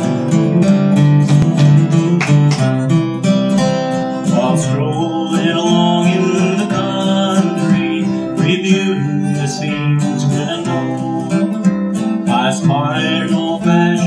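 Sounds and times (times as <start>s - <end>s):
picked acoustic guitar melody: 0.0s - 14.0s
strummed acoustic guitar: 0.0s - 14.0s.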